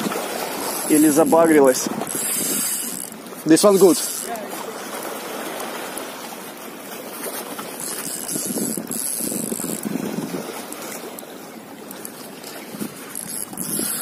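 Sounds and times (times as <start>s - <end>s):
fishing reel gears whirring: 0.0s - 14.0s
rushing water: 0.0s - 14.0s
wind: 0.0s - 14.0s.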